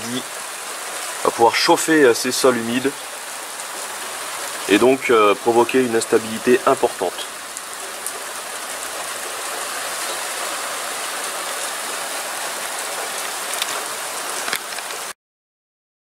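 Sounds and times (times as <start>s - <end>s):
rain shower hissing: 0.0s - 15.2s
raindrop strikes: 11.2s - 15.1s.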